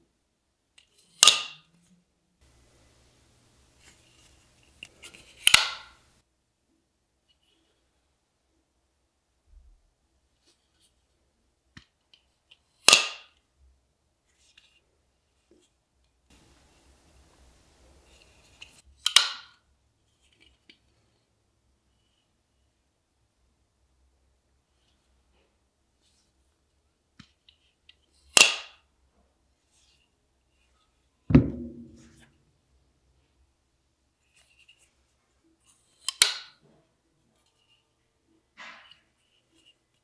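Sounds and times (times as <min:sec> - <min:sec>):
knife knocking on table: 0:31.3 - 0:32.2.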